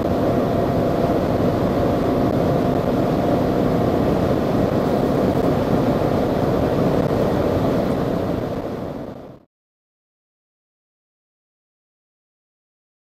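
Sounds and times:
diesel car engine droning: 0:00.0 - 0:09.4.

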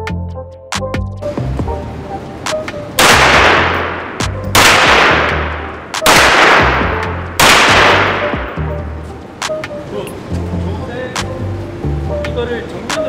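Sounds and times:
low music beat: 0:00.0 - 0:13.0
echoing rifle shots: 0:03.0 - 0:08.6.

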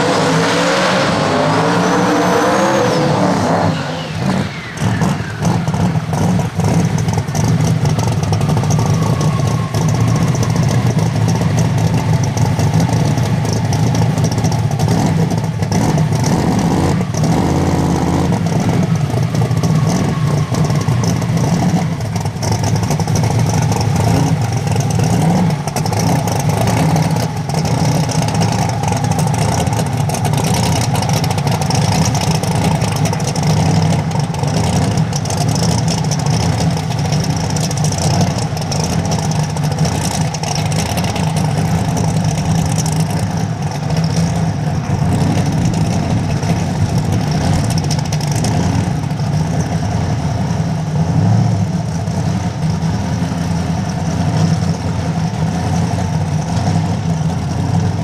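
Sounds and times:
high whistle dropping in pitch: 0:00.0 - 0:05.7, 0:08.5 - 0:12.1, 0:18.7 - 0:21.9
drag car engine running: 0:00.0 - 0:58.0.

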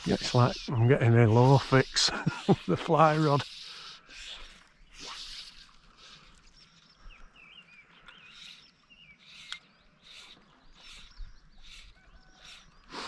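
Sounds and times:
fly line swishing: 0:00.0 - 0:06.5
small birds chirping: 0:00.0 - 0:13.0.

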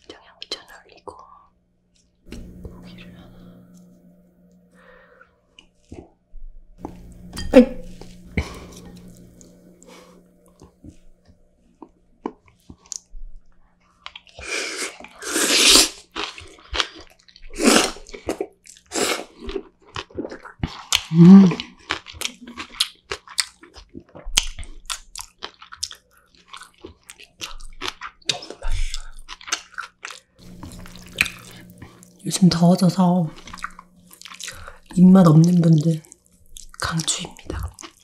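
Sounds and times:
wet chewing and crunching: 0:13.8 - 0:15.2, 0:15.9 - 0:32.6, 0:33.2 - 0:38.0.

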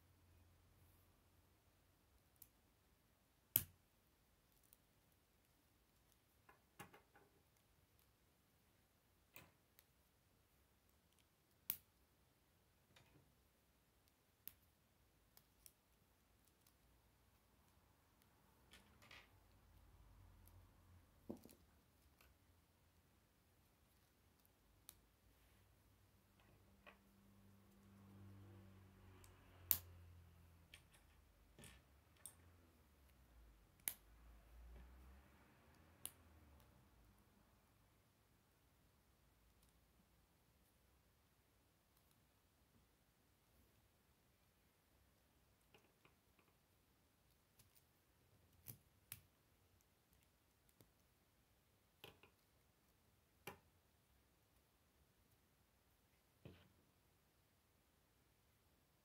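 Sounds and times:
faint clicks and taps: 0:51.8 - 0:53.8.

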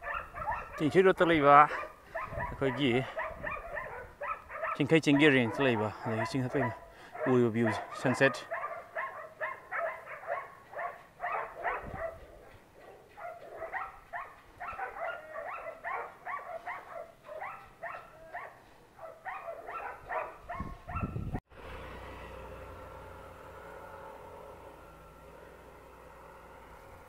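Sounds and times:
dog yapping: 0:00.0 - 0:00.9, 0:01.7 - 0:21.2.

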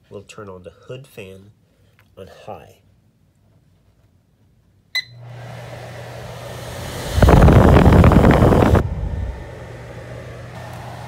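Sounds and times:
microwave keypad beep: 0:05.0 - 0:05.2
vent fan humming: 0:05.0 - 0:11.0
air buffeting microphone: 0:05.3 - 0:11.0.

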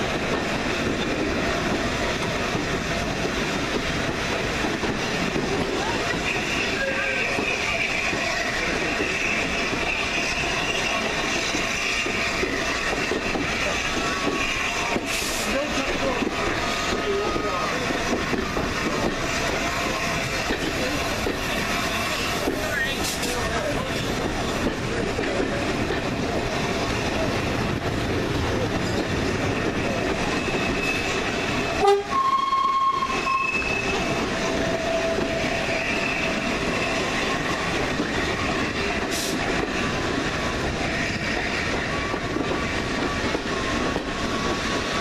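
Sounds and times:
train rumble and wheel clatter: 0:00.0 - 0:45.0
locomotive horn: 0:31.8 - 0:33.8.

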